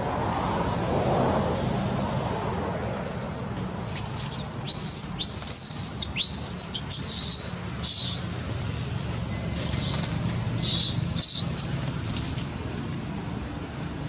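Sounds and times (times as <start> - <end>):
animal squeaking calls: 4.0 - 8.2, 10.6 - 12.6.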